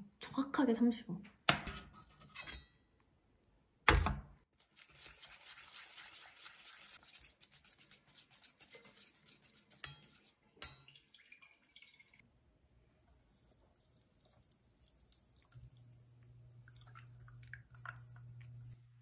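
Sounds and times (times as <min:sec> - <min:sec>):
whisk scraping metal bowl: 0:04.8 - 0:10.8.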